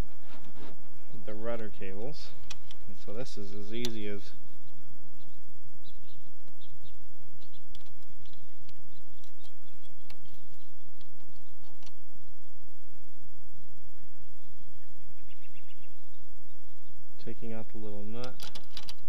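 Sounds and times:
steady low rumble: 0.0 - 18.4
small metal hardware clicking: 18.2 - 19.0.

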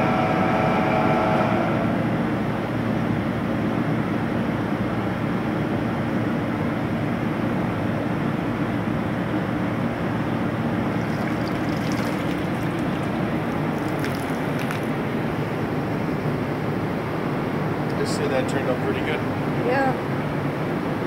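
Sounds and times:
water stream running: 10.6 - 16.5
water sloshing and splashing: 10.7 - 16.2.

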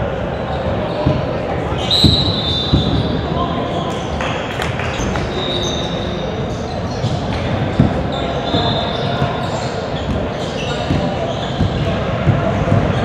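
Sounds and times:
echoing indistinct voices: 0.0 - 13.0
basketball bouncing on wooden floor: 10.1 - 13.0.

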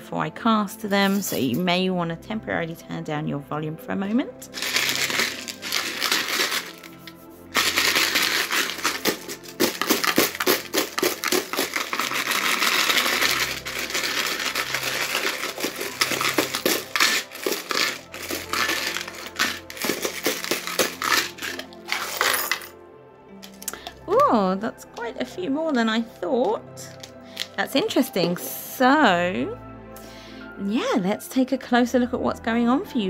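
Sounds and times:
small charms rattling in a cup: 4.5 - 22.7.

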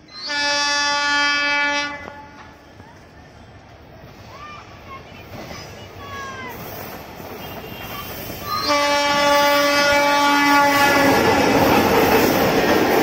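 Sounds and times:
train engine and wheels passing: 0.0 - 13.0
train horn blast: 0.2 - 2.6, 7.4 - 11.3.

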